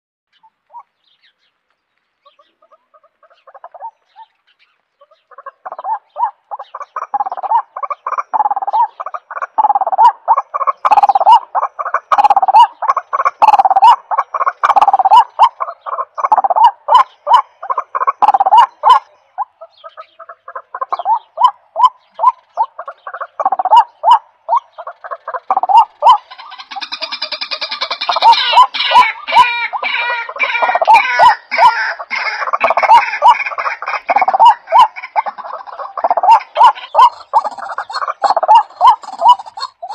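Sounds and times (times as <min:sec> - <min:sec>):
bird calling repeated notes: 0:02.2 - 0:39.9.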